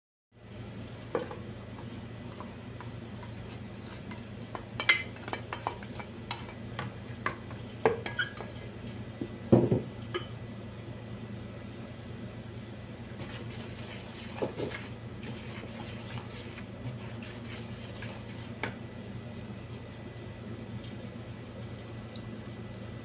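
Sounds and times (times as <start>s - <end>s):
steady low hum: 0.4s - 23.0s
plastic spoon scraping plastic basin: 13.2s - 18.6s.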